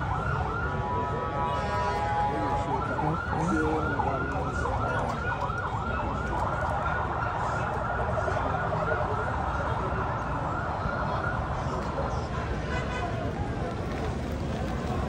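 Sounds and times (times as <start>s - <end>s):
siren sweeping: 0.0s - 11.5s.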